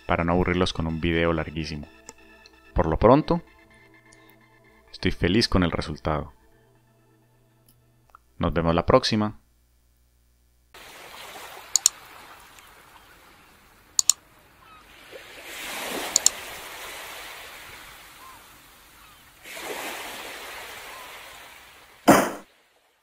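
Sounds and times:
ocean waves washing in: 0:10.8 - 0:23.0
short double clicks: 0:11.8 - 0:12.0, 0:14.0 - 0:14.2, 0:16.1 - 0:16.4.

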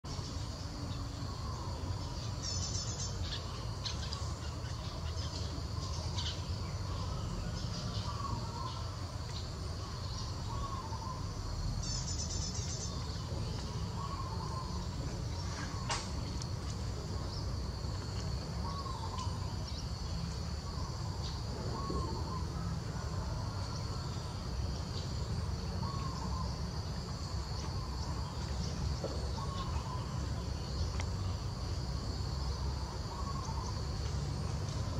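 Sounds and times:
high insect drone: 0:00.1 - 0:34.9.

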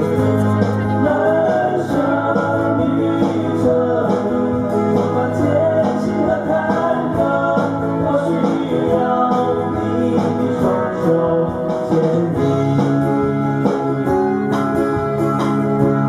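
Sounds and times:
men singing slow song: 0:00.0 - 0:12.8
guitars strummed and picked: 0:00.0 - 0:16.0.

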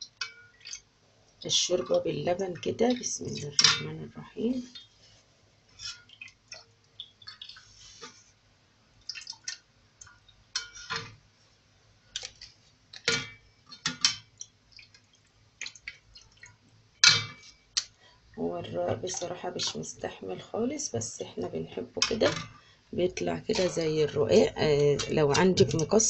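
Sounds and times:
liquid splashing in a bowl: 0:05.8 - 0:08.2, 0:09.0 - 0:11.2, 0:12.1 - 0:18.0.

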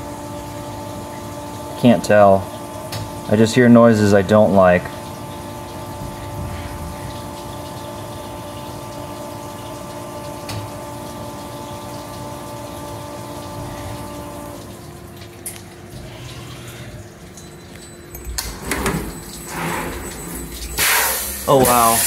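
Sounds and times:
coolant spraying: 0:00.0 - 0:17.6, 0:18.2 - 0:22.0
machine whine: 0:15.5 - 0:22.0.

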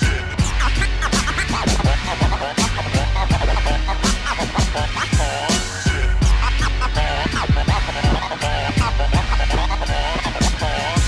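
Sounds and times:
hip hop beat with deep bass: 0:00.0 - 0:11.0.

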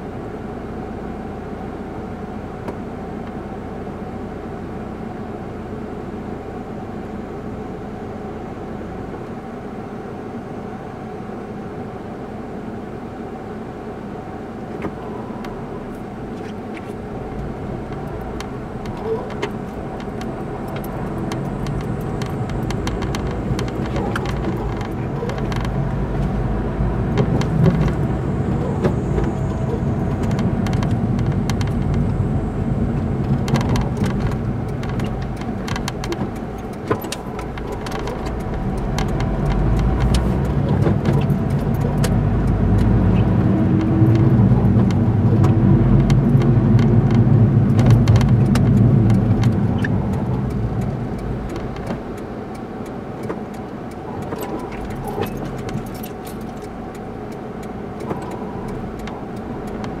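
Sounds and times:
car engine: 0:00.0 - 1:00.0
road noise: 0:00.0 - 1:00.0
light clicks and rattles: 0:16.3 - 0:26.5, 0:33.0 - 1:00.0.

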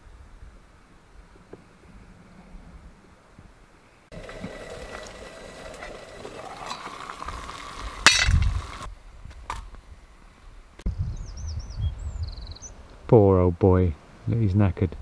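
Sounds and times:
water heating on camp stove: 0:04.1 - 0:08.9.

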